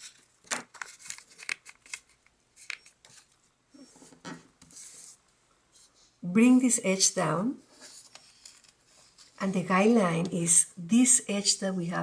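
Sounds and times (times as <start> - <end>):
paper crackling and rustling: 0.0 - 3.4.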